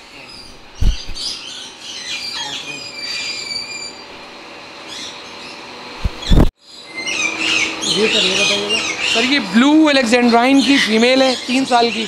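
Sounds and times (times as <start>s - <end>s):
birds chirping and whistling: 0.2s - 12.0s.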